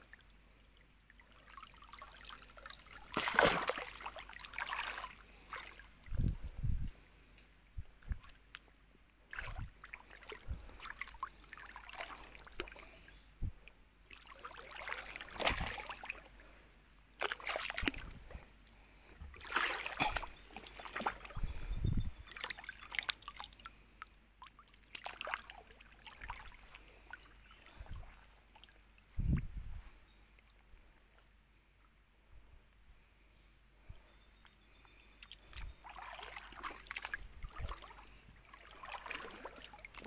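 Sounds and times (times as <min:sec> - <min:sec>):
water sloshing and splashing: 0:01.1 - 0:06.4, 0:09.3 - 0:13.2, 0:14.1 - 0:16.6, 0:17.2 - 0:18.5, 0:19.1 - 0:23.8, 0:24.4 - 0:29.5, 0:35.2 - 0:40.0.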